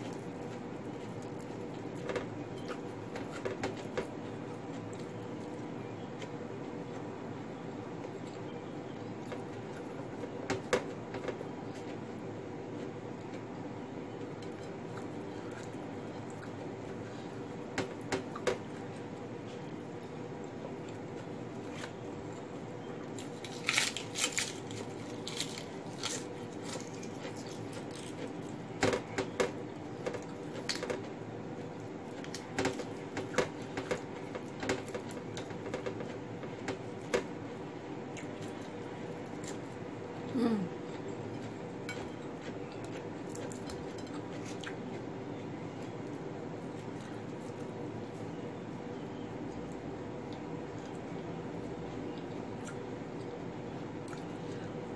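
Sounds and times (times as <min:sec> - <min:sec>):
steady low hum: 0:00.0 - 0:54.9
chewing: 0:20.8 - 0:28.6, 0:40.8 - 0:45.1.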